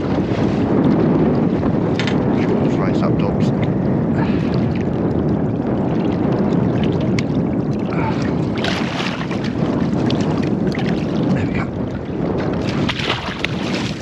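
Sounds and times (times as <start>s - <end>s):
low rumble of wind and water: 0.0s - 14.0s
eel splashing in water: 12.6s - 14.0s.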